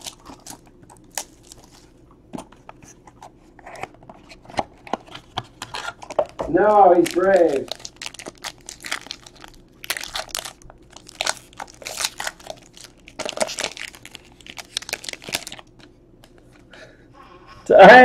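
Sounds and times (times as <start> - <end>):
foil wrapper crinkling and tearing: 0.0 - 1.9, 5.2 - 16.4.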